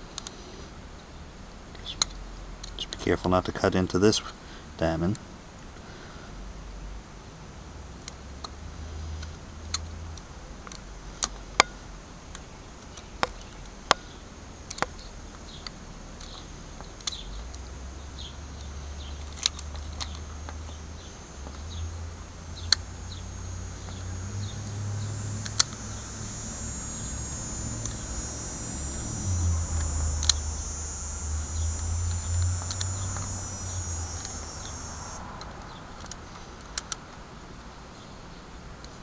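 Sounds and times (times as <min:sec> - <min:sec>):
low steady hum: 0:14.3 - 0:35.4.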